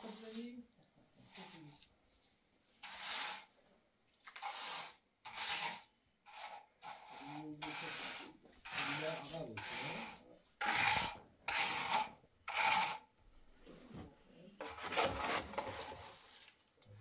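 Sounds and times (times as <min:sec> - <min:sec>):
steel trowel scraping cement: 0:02.8 - 0:03.5, 0:04.3 - 0:13.1, 0:14.6 - 0:16.4.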